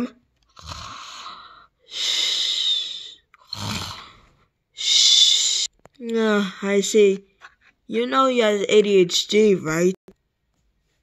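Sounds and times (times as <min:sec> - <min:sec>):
person imitating snoring: 0:00.5 - 0:04.3.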